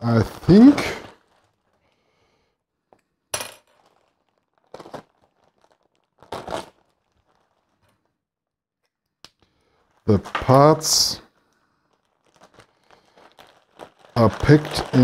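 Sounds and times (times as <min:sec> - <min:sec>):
plastic bag crinkling: 0:00.5 - 0:02.1, 0:03.6 - 0:08.2, 0:09.7 - 0:10.7, 0:11.3 - 0:15.0.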